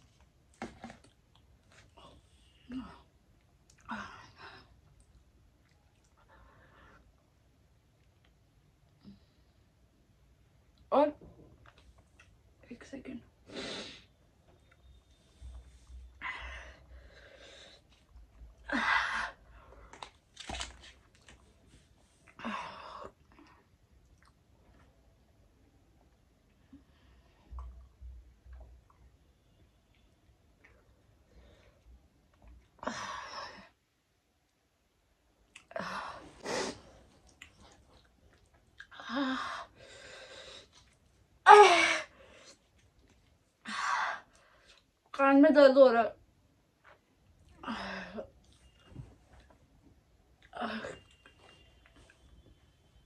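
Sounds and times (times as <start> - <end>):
woman breathing heavily: 39.0 - 40.7.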